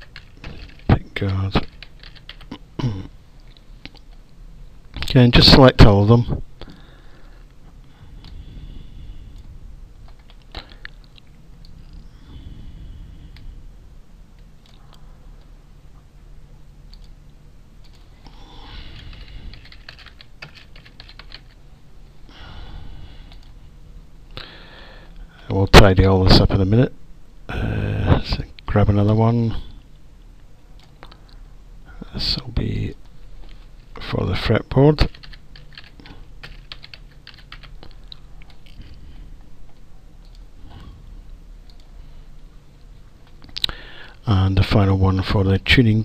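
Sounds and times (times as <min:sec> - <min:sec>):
computer keyboard typing: 0:00.0 - 0:02.6, 0:19.0 - 0:21.6, 0:35.1 - 0:38.6
low hum: 0:06.0 - 0:34.4.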